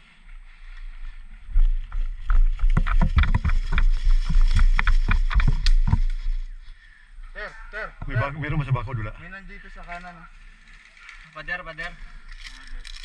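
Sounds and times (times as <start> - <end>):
wind rumble on microphone: 1.0 - 6.6
running footsteps: 1.1 - 6.7
rattling gear: 10.0 - 13.0.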